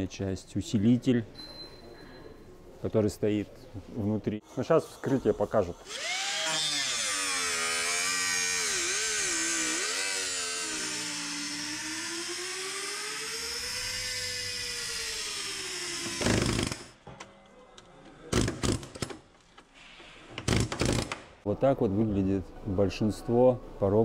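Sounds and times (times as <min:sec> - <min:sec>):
angle grinder cutting metal: 0:05.8 - 0:17.0.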